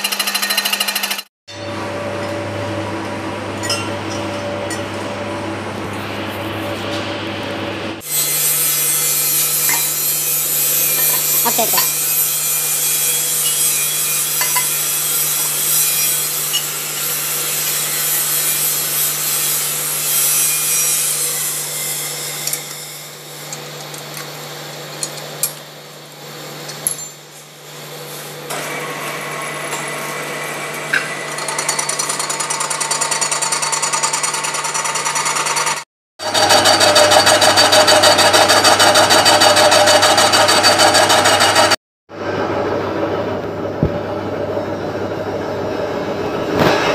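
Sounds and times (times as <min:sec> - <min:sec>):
milling machine humming: 0:00.0 - 0:15.6.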